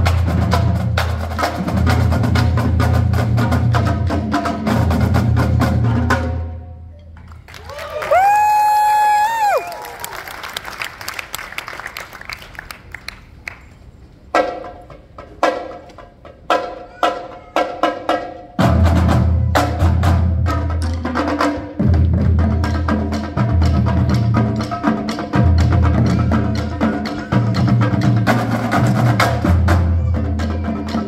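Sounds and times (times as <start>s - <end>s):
marching drumline playing: 0.0s - 6.8s, 14.3s - 31.0s.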